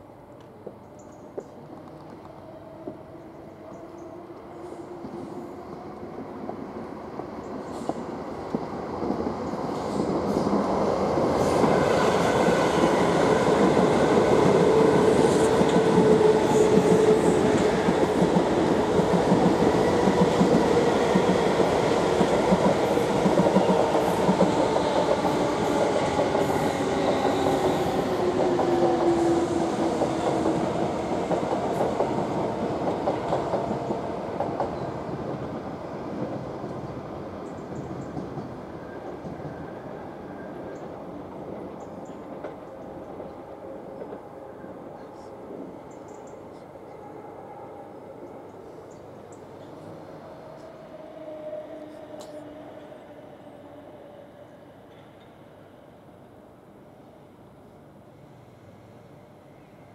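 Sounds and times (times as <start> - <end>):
train wheels clattering over rails: 7.7 - 38.6.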